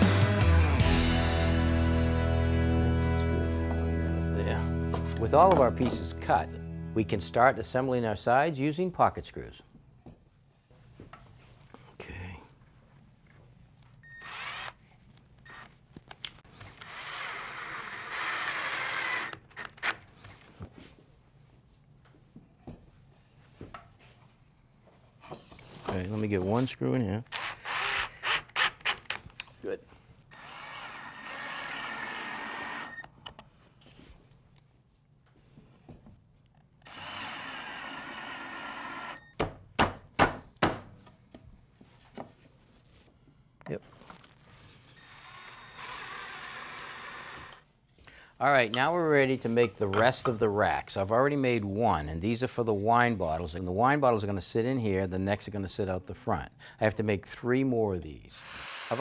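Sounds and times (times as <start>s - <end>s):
cordless drill driving screw: 14.1s - 14.8s, 15.5s - 15.7s, 16.6s - 20.1s, 27.3s - 29.2s, 30.3s - 33.1s, 36.8s - 39.2s, 45.0s - 47.6s, 58.4s - 59.0s
sharp knocks on wood: 39.4s - 40.9s.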